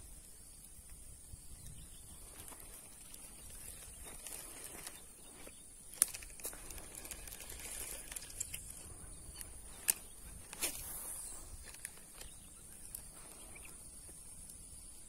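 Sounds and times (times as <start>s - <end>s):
high-pitched insect chorus: 0.0s - 15.0s
light rustling: 2.1s - 14.6s
small clicks: 5.9s - 10.8s.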